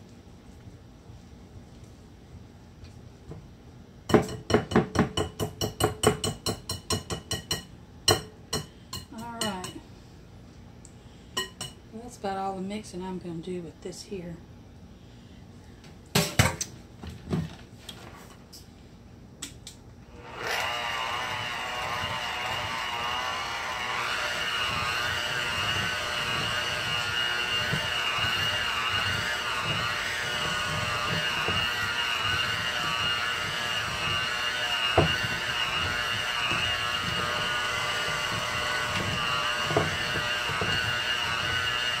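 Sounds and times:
beater knocking against bowl: 4.1s - 9.8s
electric hand mixer whine: 20.1s - 42.0s.

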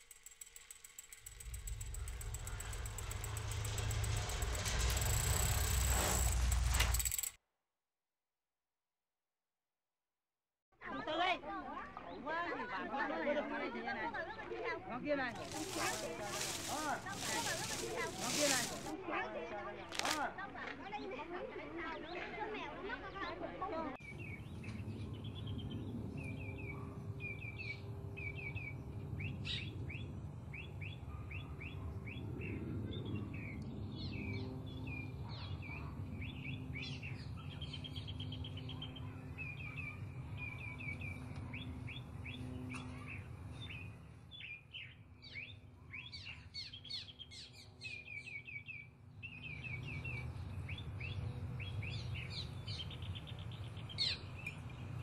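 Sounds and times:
low steady background rumble: 1.0s - 6.6s
small birds chirping: 15.4s - 18.9s.

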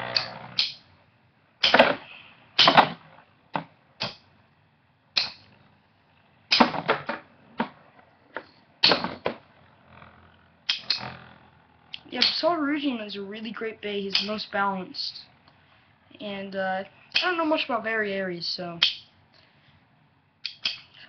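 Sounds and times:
spinning tops clacking: 0.0s - 0.9s, 5.2s - 5.5s, 10.7s - 11.2s, 20.4s - 21.0s.

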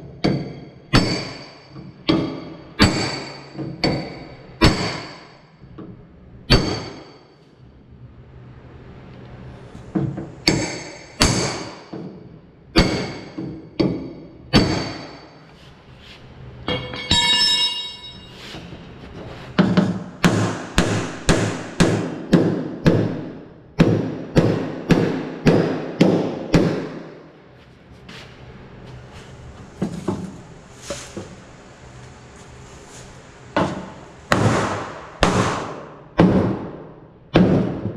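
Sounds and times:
hammer striking steel: 0.2s - 5.3s, 6.5s - 7.2s, 12.8s - 15.4s, 16.7s - 18.6s, 33.6s - 37.8s.

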